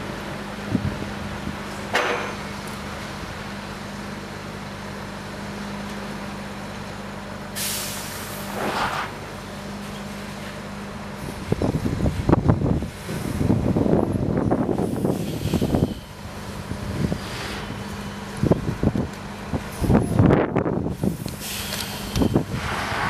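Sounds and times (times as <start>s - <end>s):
diesel engine humming: 0.0s - 23.0s
air brake hiss: 7.6s - 9.2s, 14.8s - 16.2s, 21.0s - 23.0s.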